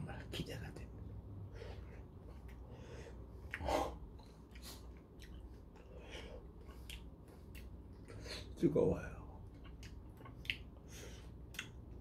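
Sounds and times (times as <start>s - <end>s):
man chewing wetly: 2.3s - 8.2s, 9.4s - 12.0s.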